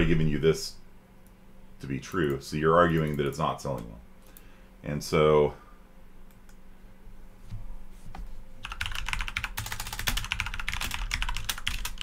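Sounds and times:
fast typing on keyboard: 0:08.6 - 0:12.0.

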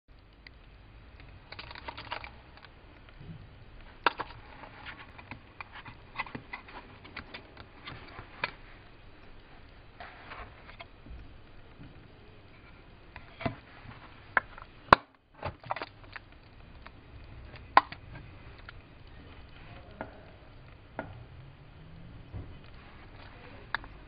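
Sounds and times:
plastic cases clicking: 0:04.0 - 0:08.6.

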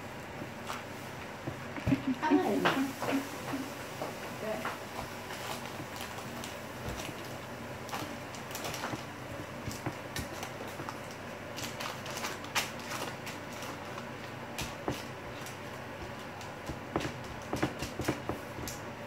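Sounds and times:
hands pressing bread dough: 0:04.0 - 0:19.0.

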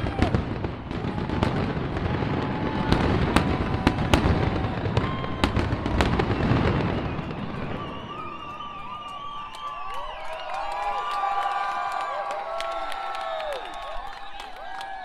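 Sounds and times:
fireworks whistles: 0:00.0 - 0:11.4
fireworks bangs and cracks: 0:00.0 - 0:11.9.

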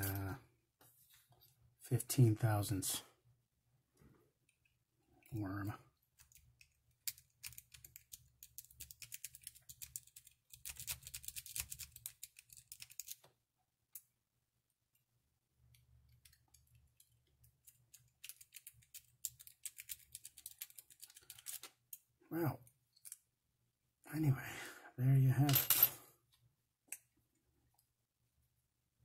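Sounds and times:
lock pick clicking and scraping: 0:06.2 - 0:13.3, 0:15.7 - 0:21.7.

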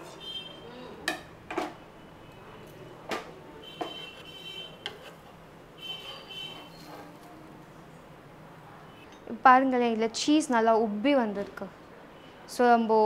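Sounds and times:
spatula squeaking on pan: 0:03.6 - 0:07.0.

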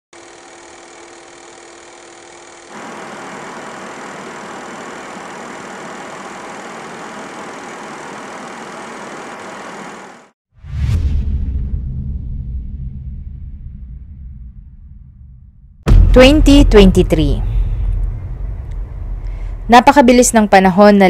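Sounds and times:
film projector whirring and clattering: 0:00.2 - 0:10.3.

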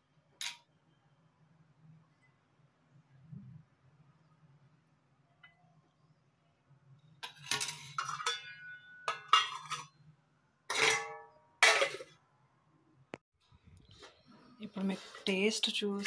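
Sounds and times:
steel lids clanking on pots: 0:07.2 - 0:10.0, 0:10.7 - 0:12.1.

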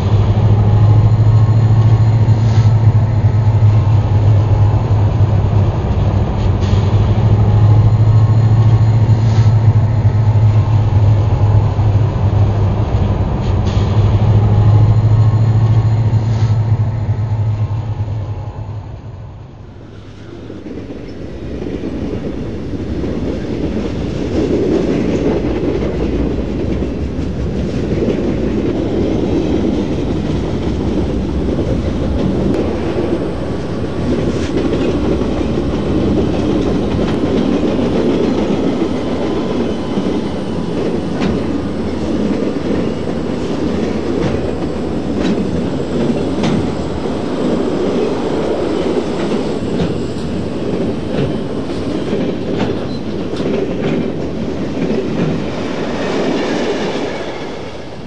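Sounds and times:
freight train rumbling: 0:00.0 - 0:58.0
wheels clicking over rail joints: 0:20.2 - 0:57.2.

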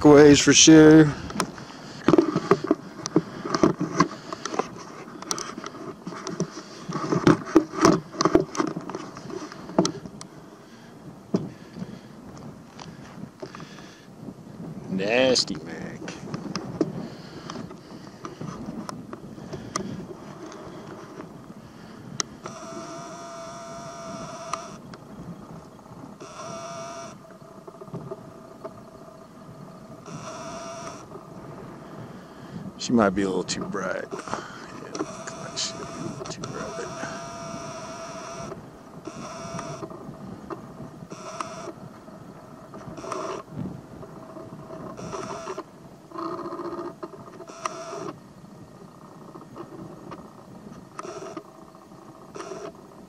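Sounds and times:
wind buffeting microphone: 0:00.0 - 0:53.0
camcorder zoom motor whining: 0:22.0 - 0:27.8, 0:28.7 - 0:31.3, 0:33.9 - 0:42.0, 0:42.8 - 0:43.5, 0:44.2 - 0:48.2, 0:49.0 - 0:53.0.

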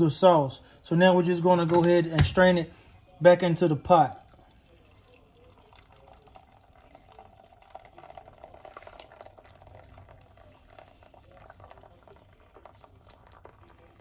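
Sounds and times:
thick sauce pouring through a strainer: 0:03.9 - 0:14.0.

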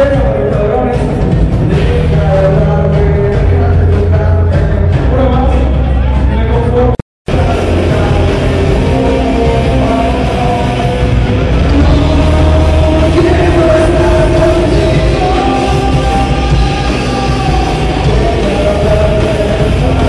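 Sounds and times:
bass guitar: 0:00.0 - 0:20.0
drums: 0:00.0 - 0:20.0
electric guitars: 0:07.3 - 0:20.0.

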